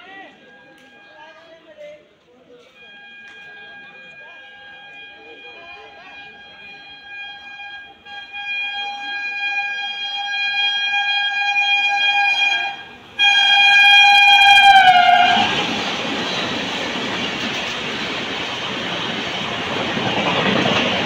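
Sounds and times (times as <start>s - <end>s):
train air horn blasts: 2.6s - 16.6s
train wheels rumbling on rails: 2.6s - 21.0s.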